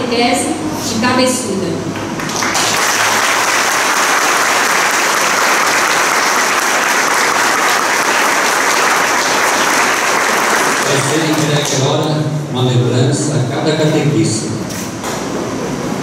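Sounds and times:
crowd hand clapping: 2.0s - 12.1s.

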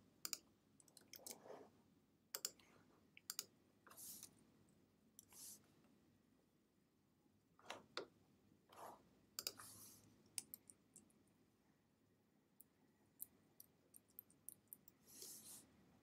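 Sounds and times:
mouse and keyboard clicks: 2.4s - 3.5s, 9.4s - 9.7s, 10.3s - 11.1s.

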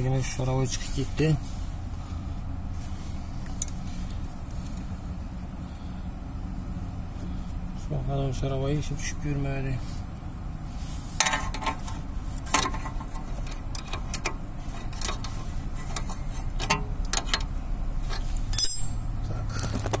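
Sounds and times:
steady low hum: 0.0s - 20.0s
hand tools clinking on metal: 18.5s - 19.0s.

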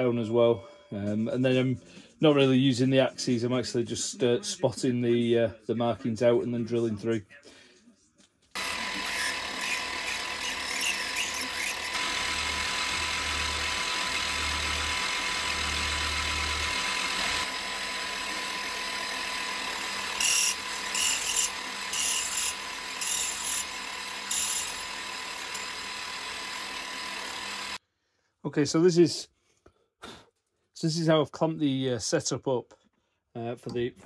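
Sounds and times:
drill bit cutting brass: 8.6s - 27.8s
milling machine motor whine: 8.6s - 27.8s.

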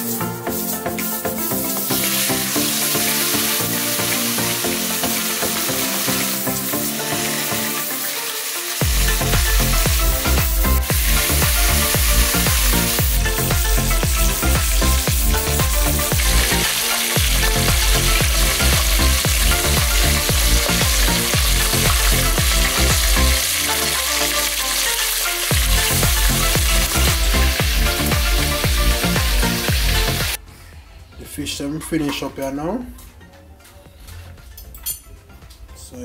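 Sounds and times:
fish sizzling in hot oil: 0.0s - 30.4s
music with bass beat: 8.8s - 30.4s.

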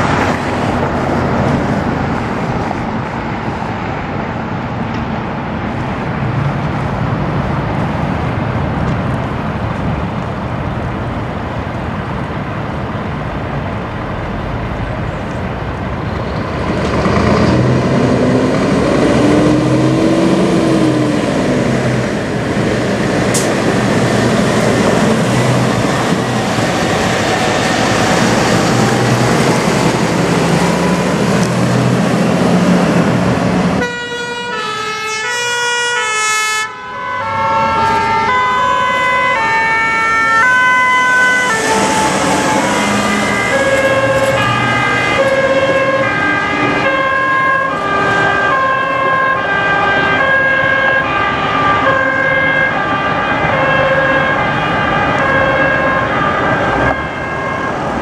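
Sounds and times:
truck engine pulling away: 13.7s - 33.8s, 37.0s - 56.9s
two-tone sirens: 16.0s - 58.0s.

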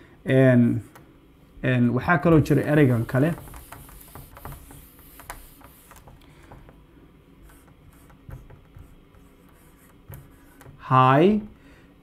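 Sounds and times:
marker on whiteboard: 2.3s - 6.8s, 7.4s - 11.5s.

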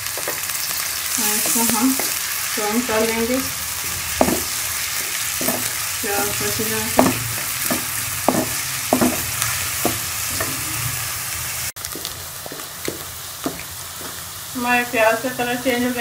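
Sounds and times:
onions sizzling in a pot: 0.0s - 16.0s
wooden spoon scraping a pan: 3.3s - 11.2s.

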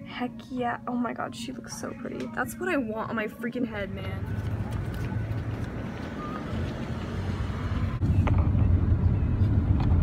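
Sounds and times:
car road noise rumble: 3.9s - 10.0s.

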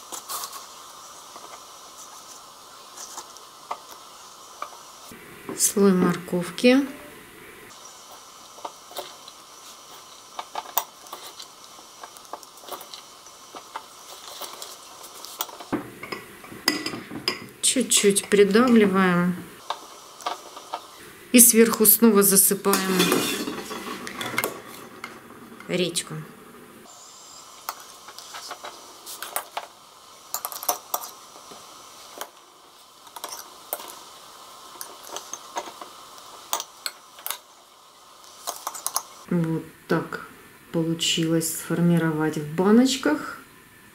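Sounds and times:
metal spoon clinking on bowl and jars: 16.0s - 17.5s.

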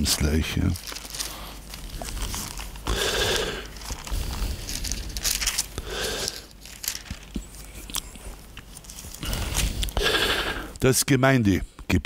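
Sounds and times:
paper pages rustling: 0.0s - 2.9s, 3.6s - 10.0s.

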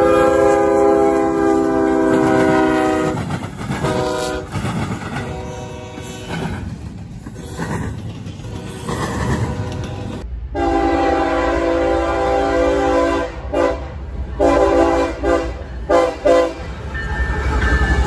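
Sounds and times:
locomotive air horn blasts: 0.0s - 4.6s, 5.2s - 6.4s, 9.6s - 16.7s
low rumble of train: 0.0s - 18.0s.

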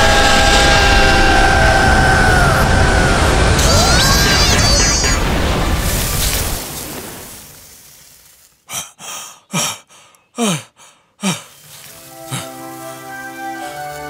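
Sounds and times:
rush of noise: 0.0s - 7.6s
cartoon rooster panting: 8.7s - 11.6s.

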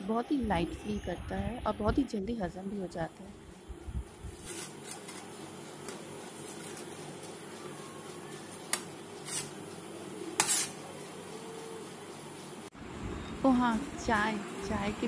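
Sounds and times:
steady low hum: 0.0s - 15.0s
metal spatula scraping steel plate: 10.4s - 10.8s.

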